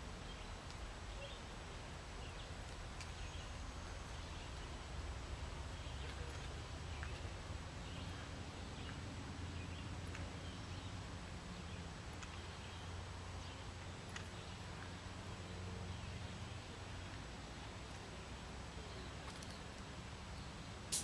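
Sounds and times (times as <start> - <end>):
faint bird chirps: 0.2 - 1.6.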